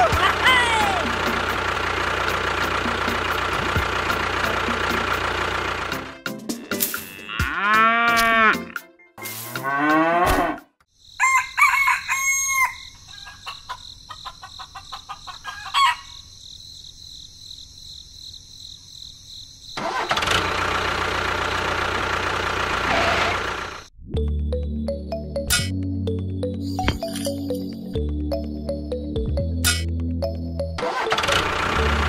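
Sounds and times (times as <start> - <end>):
loud motor noise: 0.0 - 6.2, 19.8 - 23.9, 30.8 - 32.0
rooster crowing: 11.2 - 14.2, 15.4 - 16.2
chicken clucking: 13.1 - 16.2.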